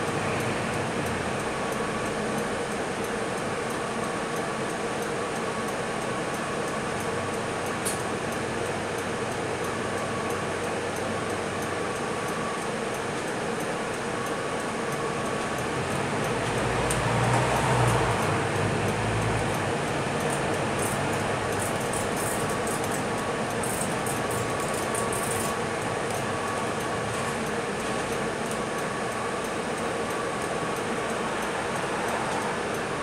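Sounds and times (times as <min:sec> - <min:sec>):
bus engine drone: 0:00.0 - 0:05.3, 0:07.0 - 0:33.0
faint light ticks: 0:00.4 - 0:10.4, 0:11.0 - 0:19.6, 0:20.2 - 0:31.6
road noise: 0:15.6 - 0:24.9, 0:30.5 - 0:33.0.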